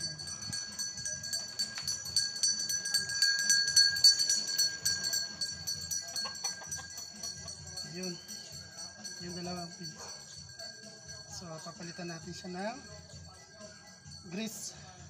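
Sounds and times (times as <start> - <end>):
continuous jingling: 0.0 - 15.0.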